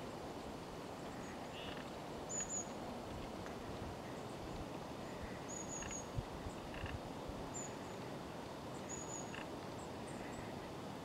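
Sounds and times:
low background noise: 0:00.0 - 0:11.0
high-pitched bird calls and trills: 0:01.2 - 0:02.8, 0:05.1 - 0:06.8, 0:08.8 - 0:09.4.

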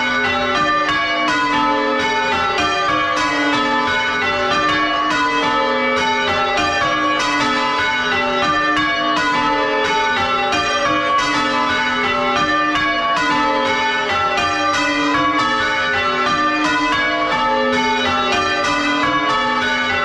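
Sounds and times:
church bells ringing: 0:00.0 - 0:20.0.

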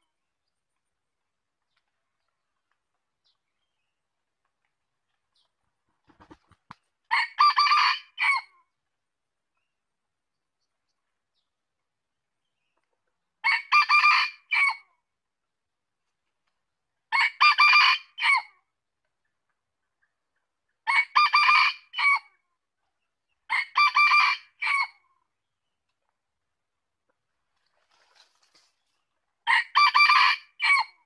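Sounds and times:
rooster crowing: 0:29.5 - 0:30.9.

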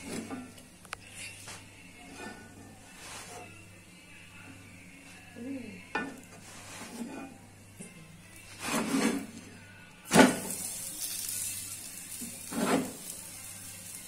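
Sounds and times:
wooden spatula scraping a pan: 0:06.4 - 0:07.3, 0:08.5 - 0:09.3, 0:12.4 - 0:13.0
bread sizzling in a pan: 0:10.1 - 0:14.0.

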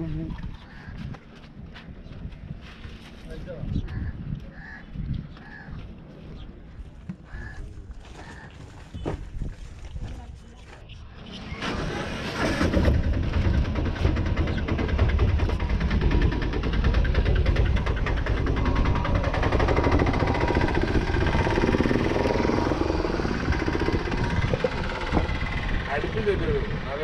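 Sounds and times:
engine running: 0:11.2 - 0:27.0.

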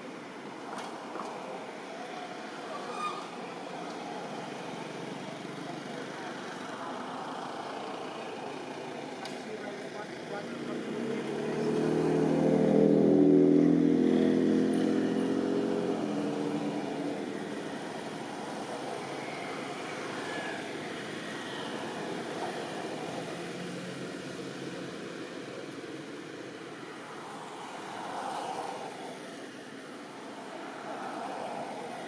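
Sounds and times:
vehicle engine passing by: 0:10.4 - 0:17.6.

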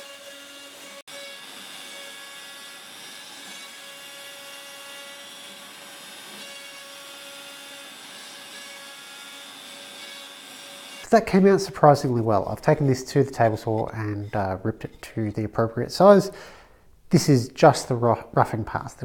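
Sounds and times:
router cutting wood: 0:00.0 - 0:11.1.

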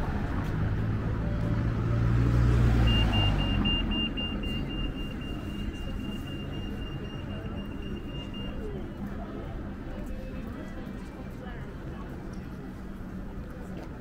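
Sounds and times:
road vehicle passing: 0:00.0 - 0:07.7
pedestrian crossing signal beeping: 0:02.8 - 0:09.1.

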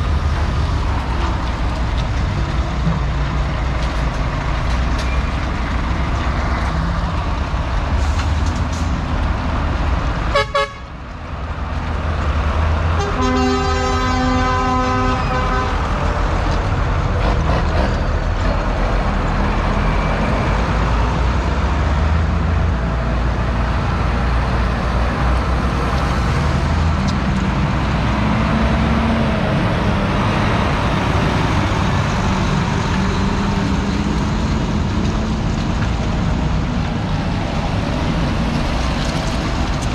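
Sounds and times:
diesel engines driving past: 0:00.0 - 0:39.9
vehicle horn: 0:10.3 - 0:10.9, 0:13.0 - 0:15.8.

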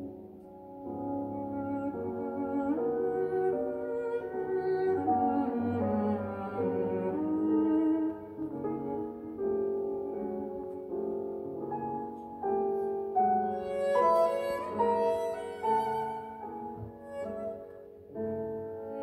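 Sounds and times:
bowed cello notes: 0:00.0 - 0:11.6, 0:13.2 - 0:19.0
piano accompaniment: 0:00.0 - 0:19.0.

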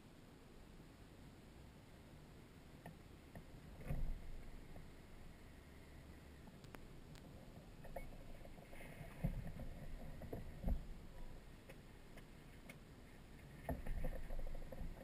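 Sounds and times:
low rumbles: 0:00.6 - 0:15.0
faint knocks and creaks: 0:02.8 - 0:05.0, 0:06.4 - 0:15.0.

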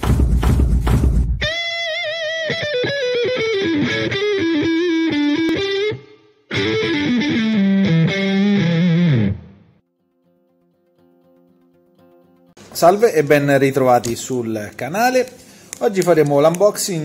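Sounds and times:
distorted electric guitar: 0:01.4 - 0:09.8.

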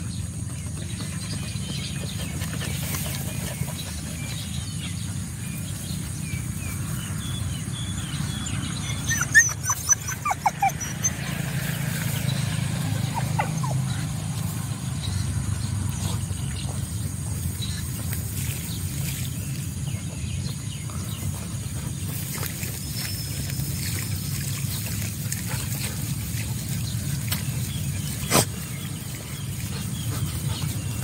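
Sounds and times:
high squeaky animal cries: 0:09.1 - 0:11.0.

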